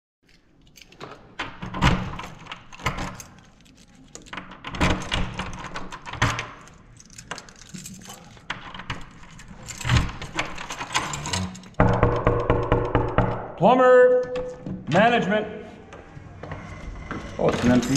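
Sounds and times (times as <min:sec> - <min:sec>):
keys jangling against a lock: 0:00.2 - 0:11.8.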